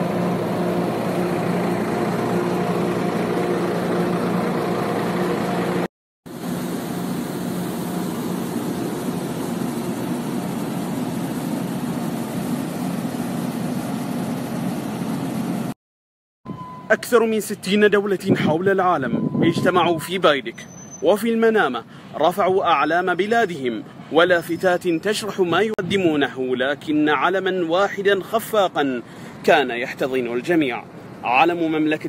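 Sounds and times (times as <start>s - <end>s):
ship machinery humming: 0.0s - 13.4s.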